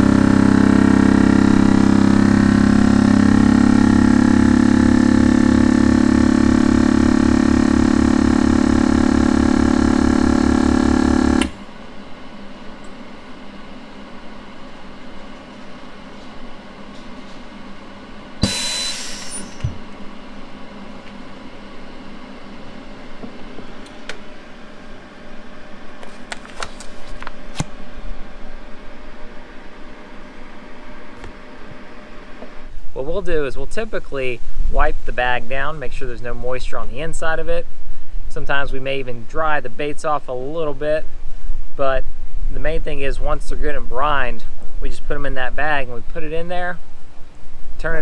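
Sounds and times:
vacuum sealer pump humming: 0.0s - 33.1s.

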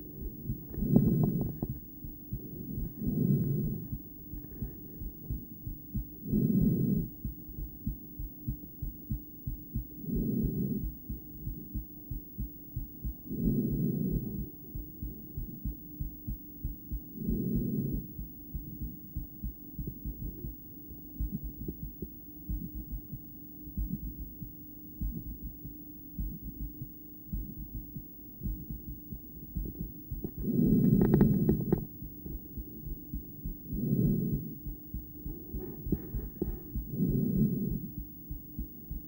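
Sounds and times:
faint steady hum: 0.0s - 39.0s
heartbeat thumps: 0.0s - 39.0s
breathing through stethoscope: 35.3s - 36.9s.

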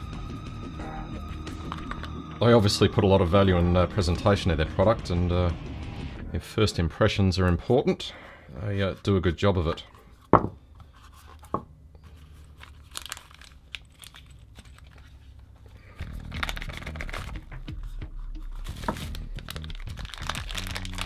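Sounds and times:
plastic packaging crinkling: 12.0s - 21.0s.

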